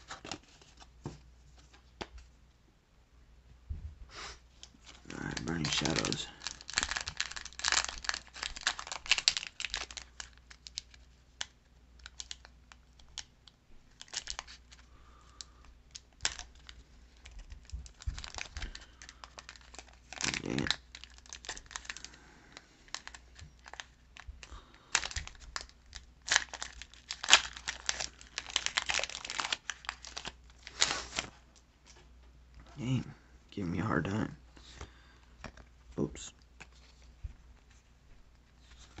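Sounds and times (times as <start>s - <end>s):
foil wrapper crinkling: 4.6s - 31.4s
foil wrapper ripping: 4.8s - 13.3s, 13.9s - 22.2s, 22.9s - 31.3s.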